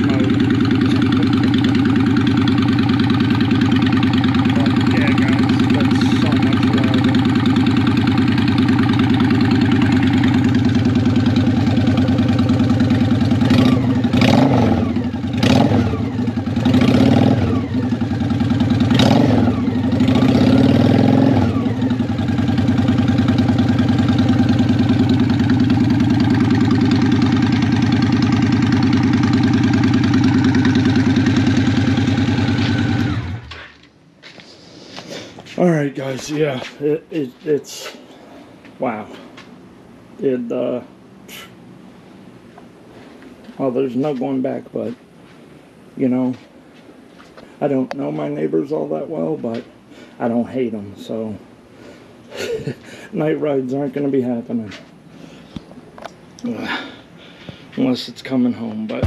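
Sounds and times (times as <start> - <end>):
motorcycle engine idling and revving: 0.0 - 33.9.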